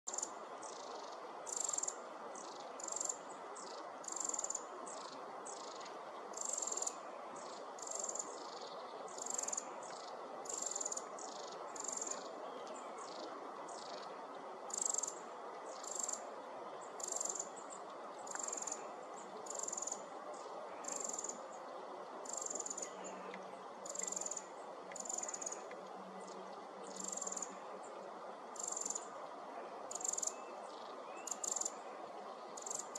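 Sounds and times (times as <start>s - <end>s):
steady low hiss: 0.1s - 32.9s
wren calling: 29.9s - 31.7s.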